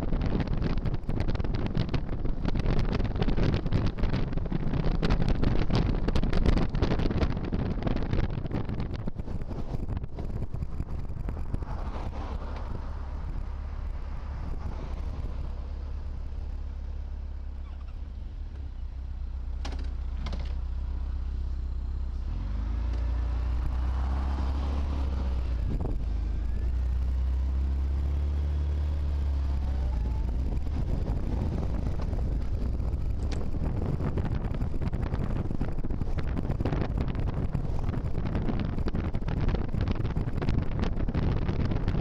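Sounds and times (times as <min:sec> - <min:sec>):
wind rumble on microphone: 0:00.0 - 0:42.0
motorcycle engine accelerating: 0:22.2 - 0:42.0.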